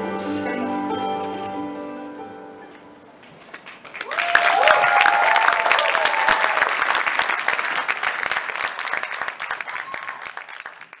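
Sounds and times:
audience applauding: 3.4 - 11.0
cheering calls: 4.0 - 7.7, 9.0 - 10.7.

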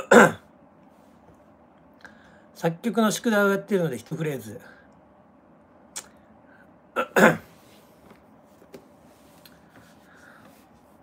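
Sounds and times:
man coughing: 0.0 - 0.5, 7.0 - 7.5.

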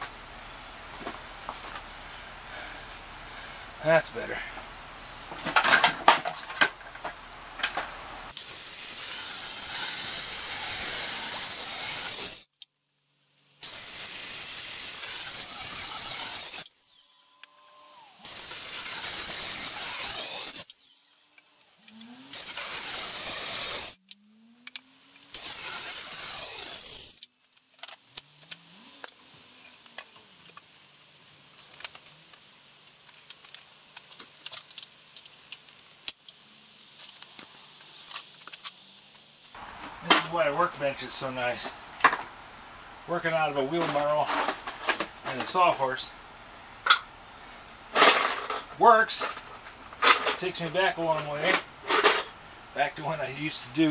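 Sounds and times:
circular saw cutting wood: 8.3 - 12.5, 13.6 - 30.9, 39.5 - 42.3, 48.0 - 53.9.

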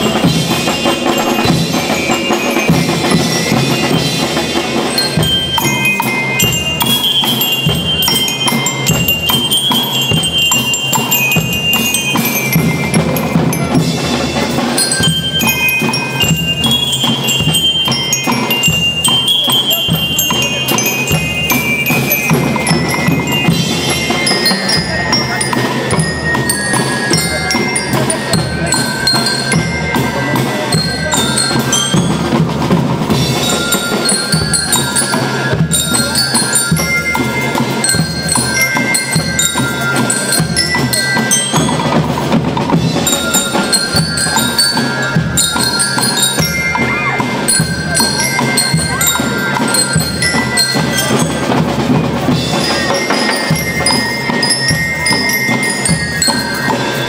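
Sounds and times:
bell lyres melody: 0.0 - 57.0
snare and bass drumming: 0.0 - 57.0.

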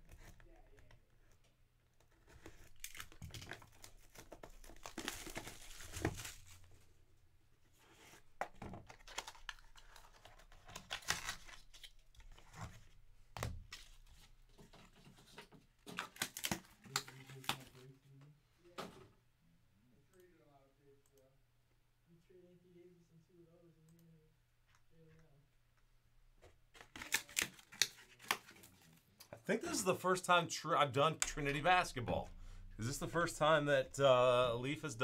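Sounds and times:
shrink wrap tearing and crinkling: 2.2 - 6.8, 8.9 - 12.5, 15.8 - 17.8, 26.7 - 28.9.

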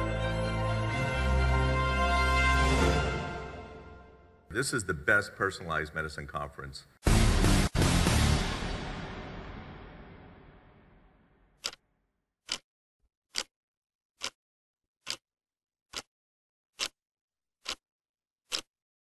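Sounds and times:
background music: 0.0 - 5.8, 7.0 - 11.1.

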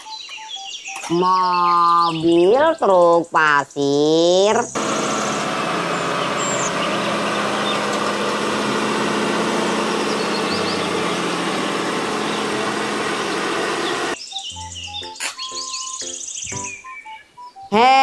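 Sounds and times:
truck diesel engine under load: 4.8 - 14.2.

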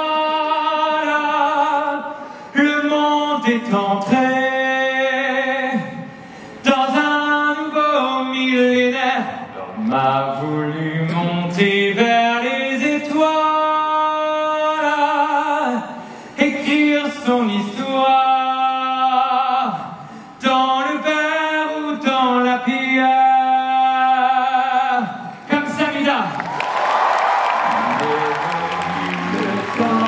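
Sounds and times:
man singing unaccompanied: 0.0 - 25.2, 27.7 - 30.0.

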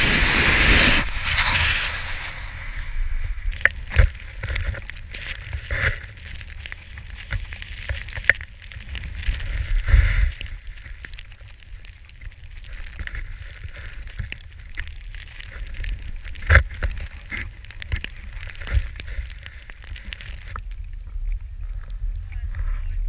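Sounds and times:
skis hissing through powder snow: 0.0 - 11.9.

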